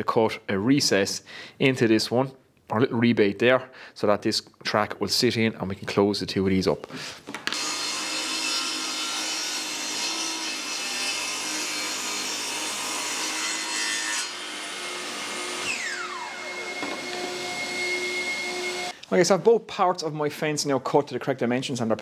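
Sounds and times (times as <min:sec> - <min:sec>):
table saw cutting plywood: 0:07.5 - 0:19.0
saw motor winding down: 0:15.1 - 0:19.0.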